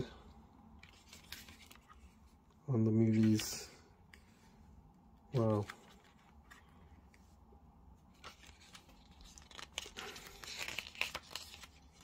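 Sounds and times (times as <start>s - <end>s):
paper pages being turned: 0.8s - 2.3s, 5.3s - 7.2s, 8.1s - 12.0s.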